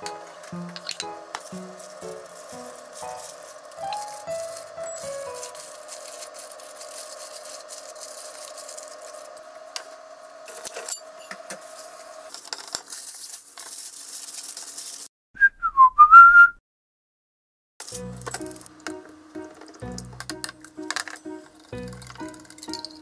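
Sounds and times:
background music with held note: 0.0s - 5.9s, 17.8s - 23.0s
aluminium foil crinkling: 0.0s - 15.1s, 17.8s - 19.0s, 19.6s - 23.0s
whistle sound effect: 3.9s - 5.5s, 15.4s - 16.6s.

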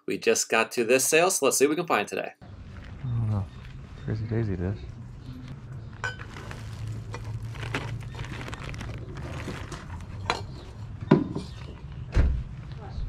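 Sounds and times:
plastic bags being handled: 5.9s - 10.9s.

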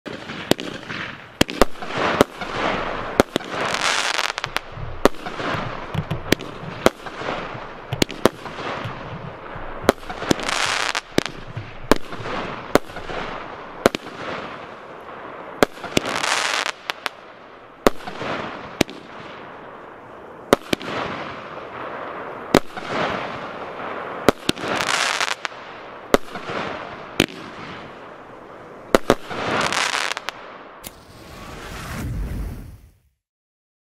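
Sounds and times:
fireworks hiss: 0.2s - 14.8s, 26.1s - 33.0s.

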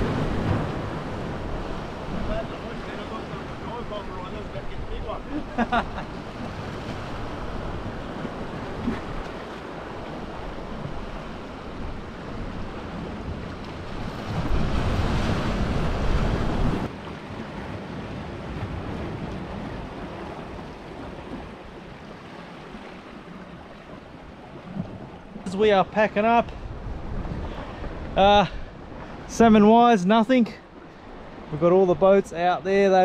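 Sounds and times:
wind buffeting microphone: 0.0s - 29.7s
waves breaking against rocks: 0.0s - 33.0s.

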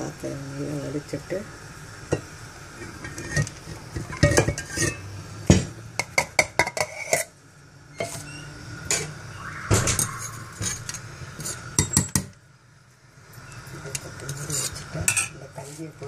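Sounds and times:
metal pots clinking and knocking: 3.0s - 5.0s
metal spoon scraping a pot: 3.0s - 5.1s, 6.6s - 7.4s, 8.0s - 9.2s, 10.0s - 12.1s, 14.3s - 15.9s.

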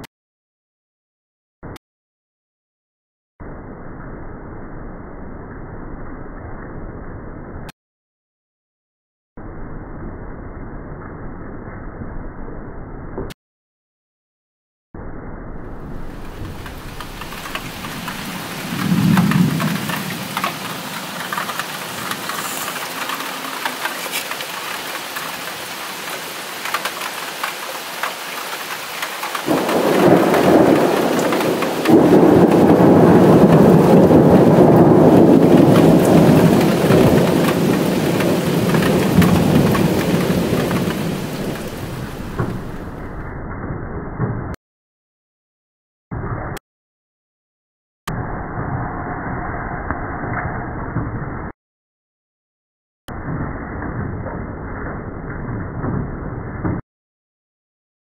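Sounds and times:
thunder rumbling: 15.3s - 27.0s, 29.4s - 44.6s
steady rain: 15.7s - 43.2s.

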